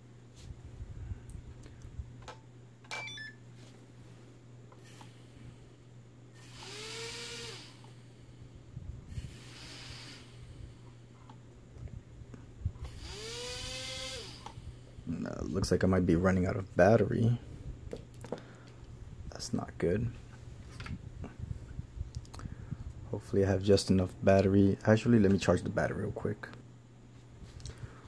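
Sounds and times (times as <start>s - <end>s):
small electric motors whirring: 6.3s - 7.9s, 9.1s - 10.3s, 12.8s - 14.6s.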